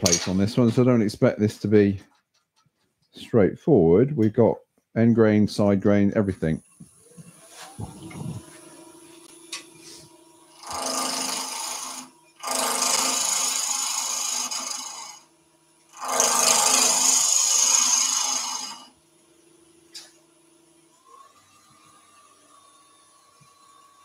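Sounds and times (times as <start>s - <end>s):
lathe motor hum: 6.6s - 20.2s
gouge cutting wood on lathe: 7.0s - 19.0s.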